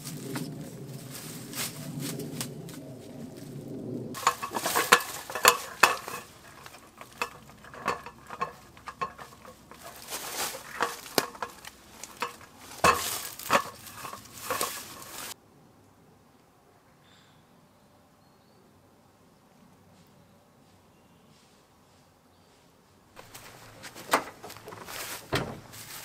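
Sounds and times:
folding table clattering: 4.2 - 15.4, 23.2 - 26.0.

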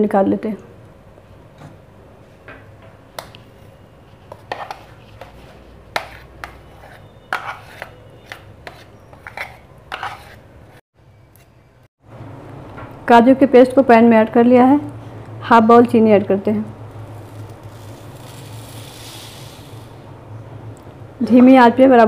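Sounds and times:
metal spoon scraping glass bowl: 4.4 - 10.5, 17.1 - 20.0.

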